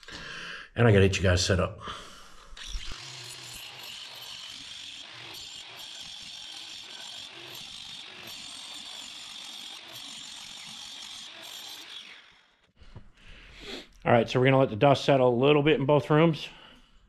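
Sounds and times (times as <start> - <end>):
angle grinder cutting wall: 2.3 - 12.7.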